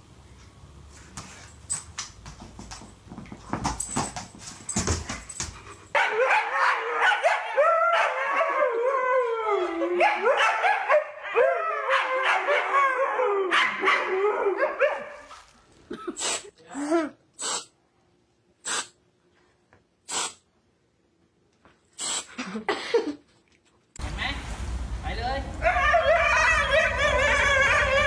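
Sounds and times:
huskies howling together: 11.1 - 14.7, 25.6 - 28.0.

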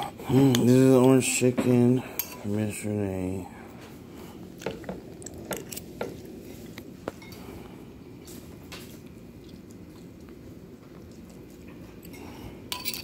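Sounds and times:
metal spoon clinking on glass bowl: 2.2 - 2.5, 12.1 - 13.0.

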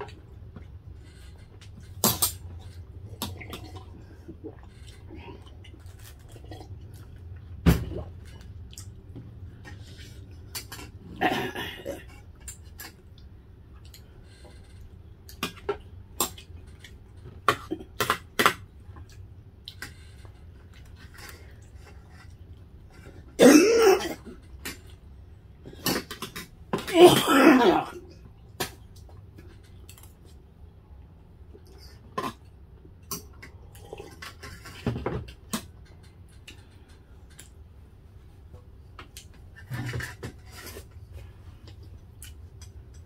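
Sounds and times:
person coughing: 11.2 - 12.1, 23.4 - 24.4, 26.9 - 28.0.

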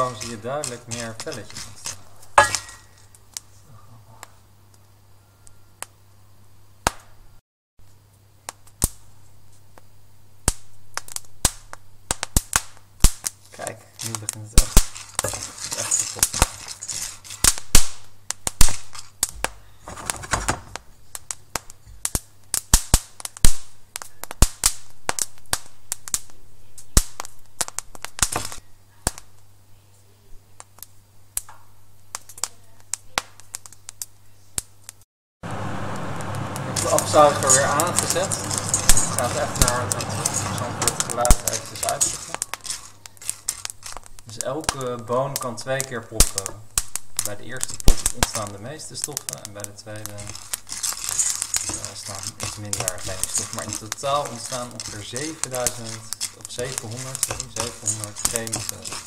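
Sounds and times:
coffee beans popping in a pan: 0.0 - 3.5, 5.8 - 6.0, 6.8 - 7.2, 8.4 - 9.1, 9.7 - 29.6, 30.6 - 59.0
beans stirred in a pan: 0.0 - 3.6, 13.2 - 19.2, 35.6 - 59.0
low steady hum: 35.4 - 44.4.

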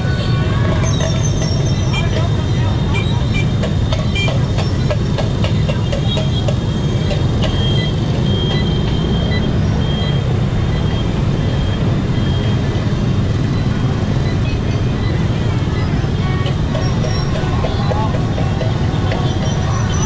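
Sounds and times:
motorbike engines rumbling: 0.0 - 20.0
short high beeps: 7.5 - 12.8.

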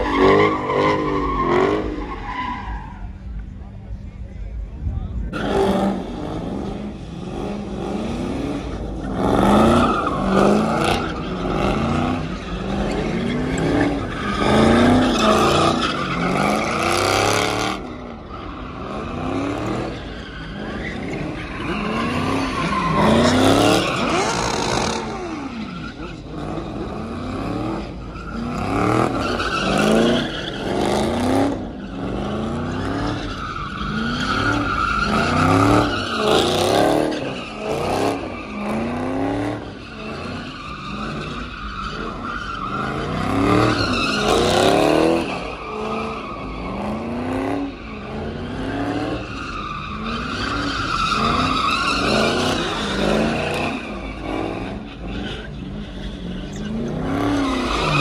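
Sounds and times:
tyres squealing on asphalt: 0.0 - 58.0
car engine revving: 5.3 - 58.0.

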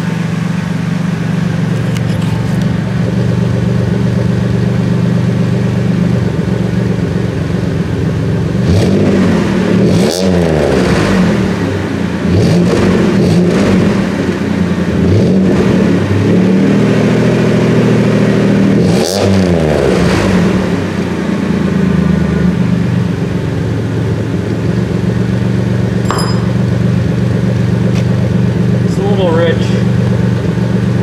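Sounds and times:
car engine idling: 0.0 - 8.6, 21.2 - 31.0.

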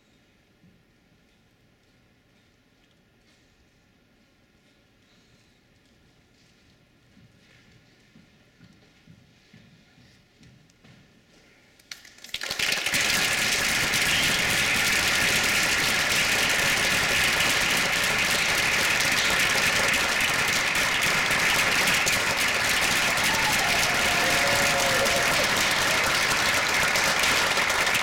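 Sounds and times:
audience applause: 12.3 - 28.0.

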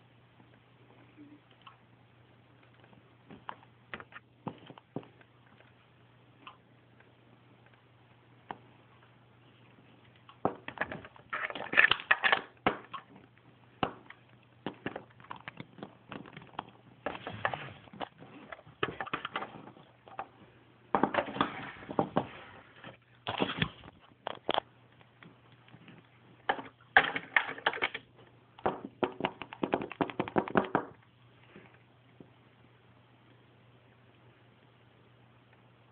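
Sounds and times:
faint low hum: 0.0 - 35.9
plastic toys clicking and rustling: 10.7 - 13.2, 26.5 - 28.1.

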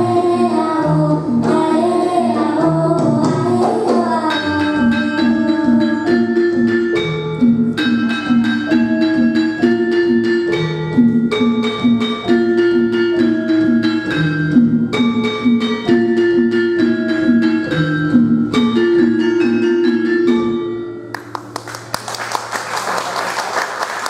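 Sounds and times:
gamelan metallophones and gongs: 4.3 - 21.0.

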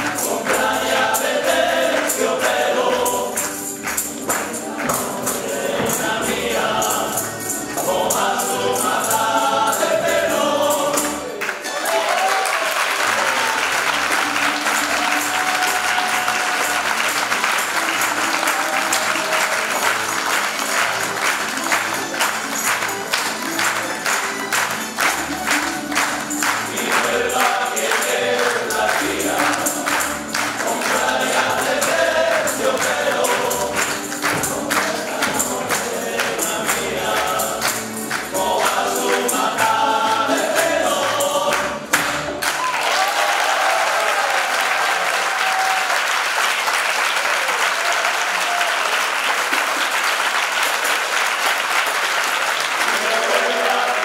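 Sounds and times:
audience applause: 0.0 - 6.2, 11.0 - 54.0
male choir singing: 0.0 - 11.4, 13.3 - 21.8, 26.2 - 42.3, 52.8 - 54.0
strummed bandurrias and guitars: 13.9 - 42.5.

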